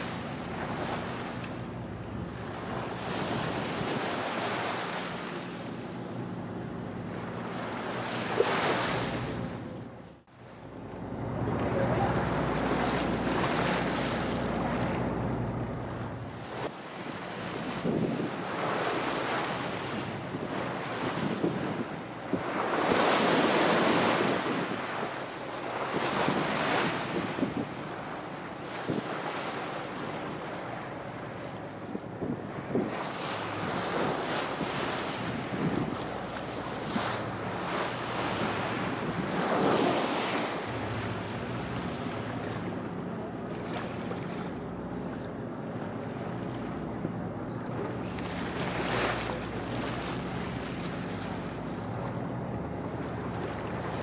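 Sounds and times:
low engine hum: 0:00.0 - 0:22.7, 0:29.5 - 0:54.0
waves washing against boat hull: 0:00.0 - 0:54.0
wind buffeting microphone: 0:10.6 - 0:29.4, 0:30.1 - 0:54.0.

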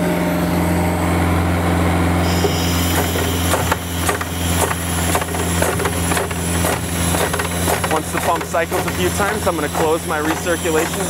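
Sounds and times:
diesel engine running: 0:00.0 - 0:11.0
pump hiss and clicks: 0:02.2 - 0:11.0.

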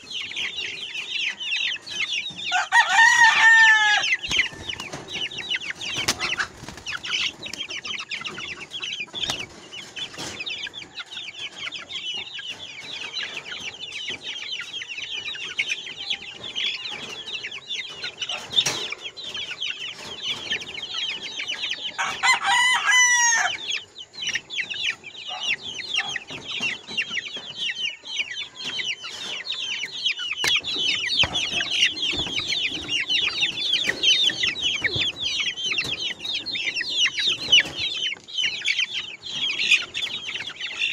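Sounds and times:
chicks peeping: 0:00.0 - 0:40.9
rooster crowing: 0:02.5 - 0:04.6, 0:22.0 - 0:23.6.

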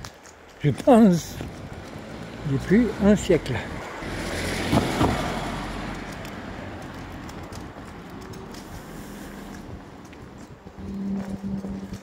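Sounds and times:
car driving past: 0:03.8 - 0:07.3.

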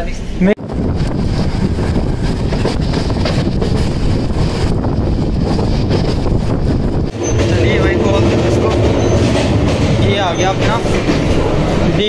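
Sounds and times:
moving train running noise: 0:00.0 - 0:12.0
wind on microphone: 0:00.6 - 0:12.0.

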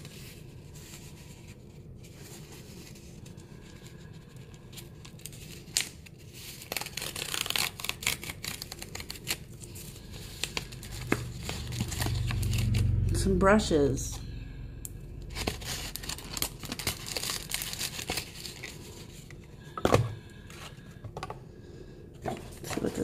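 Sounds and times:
packaging tearing and crinkling: 0:04.8 - 0:13.0, 0:15.2 - 0:19.3.

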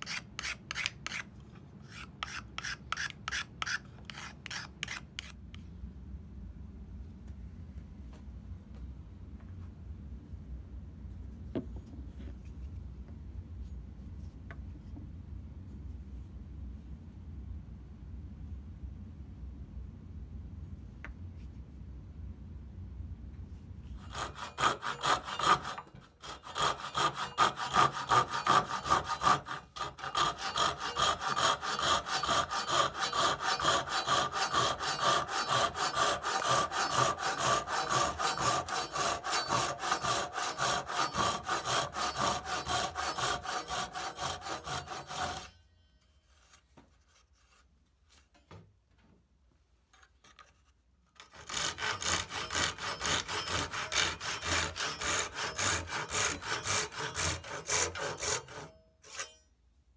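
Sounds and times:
hand saw rasping through wood: 0:00.0 - 0:05.4, 0:24.0 - 0:45.6, 0:51.2 - 0:59.4.

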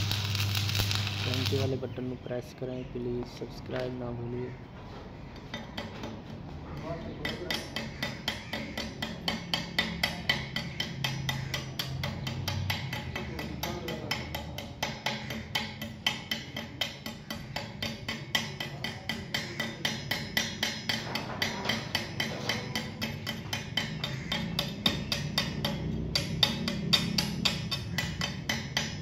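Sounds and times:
welding arc crackling: 0:00.0 - 0:01.8.

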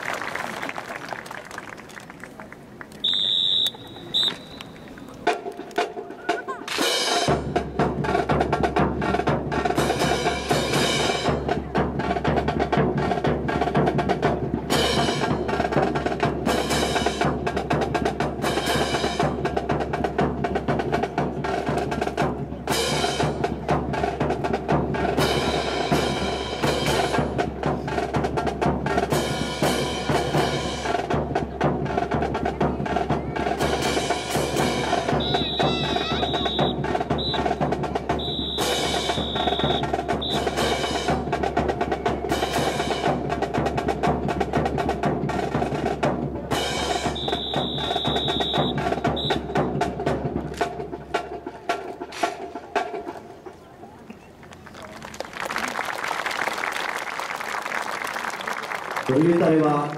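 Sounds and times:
military band march: 0:00.0 - 0:59.9
snare drum rolls: 0:03.0 - 0:53.3
bass drum beats: 0:07.2 - 0:51.2.

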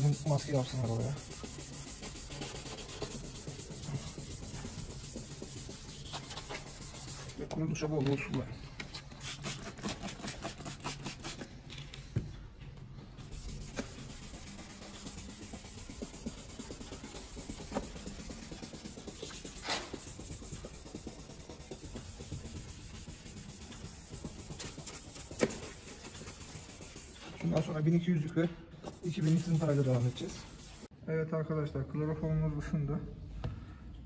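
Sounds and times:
sandpaper rubbing on plastic: 0:00.0 - 0:07.5, 0:09.0 - 0:11.5, 0:13.2 - 0:28.0, 0:29.0 - 0:30.9.

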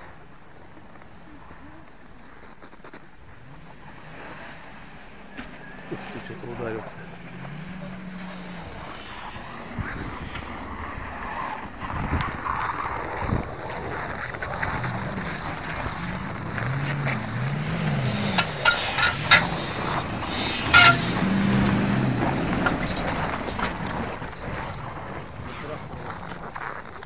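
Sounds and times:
wheels spinning in snow: 0:00.0 - 0:27.0
engine revving: 0:03.3 - 0:26.6
sharp squeaks: 0:16.7 - 0:23.9.

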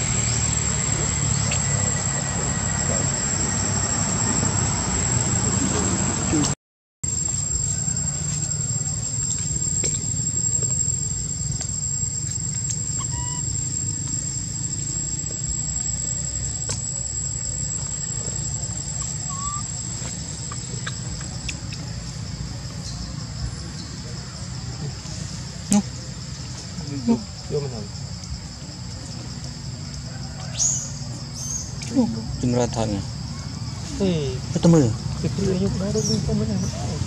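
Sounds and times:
high-pitched insect drone: 0:00.0 - 0:37.0
faint short chirps: 0:12.6 - 0:13.6.

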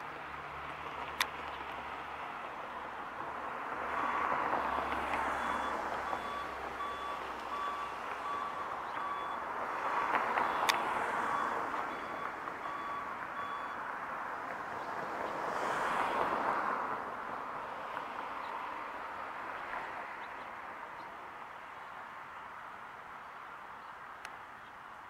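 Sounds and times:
passing traffic rushing: 0:00.0 - 0:25.0
back-up alarm beeping: 0:05.4 - 0:09.5, 0:10.4 - 0:13.8.

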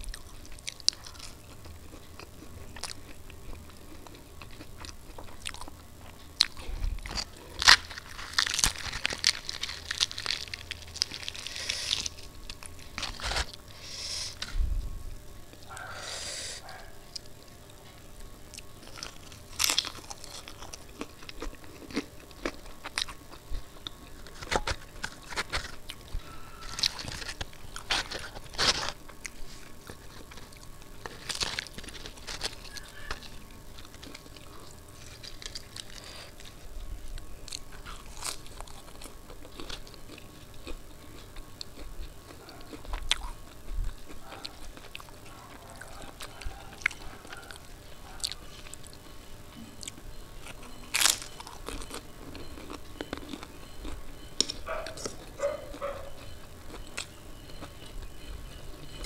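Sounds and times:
chewing: 0:00.0 - 0:14.5, 0:15.5 - 0:59.0
crisp fried bread tearing: 0:07.0 - 0:13.7, 0:18.8 - 0:36.7.

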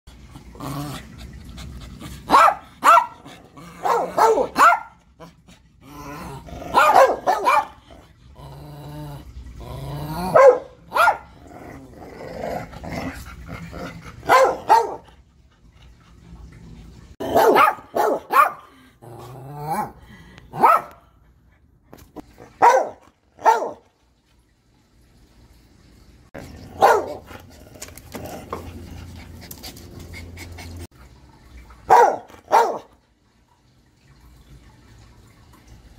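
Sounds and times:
dogs barking: 0:02.3 - 0:05.1, 0:06.7 - 0:07.8, 0:10.3 - 0:11.4, 0:14.2 - 0:15.1, 0:17.2 - 0:18.7, 0:19.7 - 0:21.1, 0:22.4 - 0:23.8, 0:26.7 - 0:27.4, 0:31.8 - 0:32.9.

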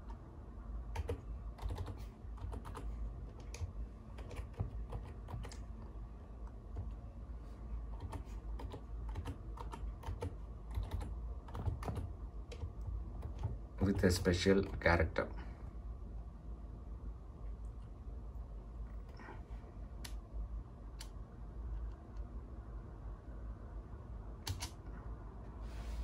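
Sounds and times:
keyboard keys clicking: 0:01.0 - 0:05.6, 0:08.0 - 0:14.9, 0:24.5 - 0:24.8.

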